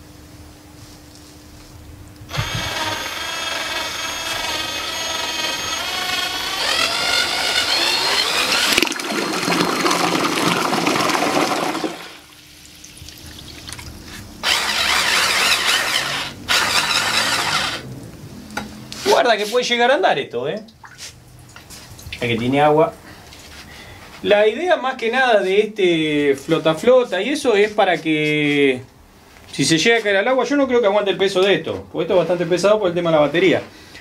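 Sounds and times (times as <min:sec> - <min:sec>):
electric drill motor whine: 0:02.3 - 0:12.3, 0:14.4 - 0:17.8
water churning and splashing: 0:08.1 - 0:17.4.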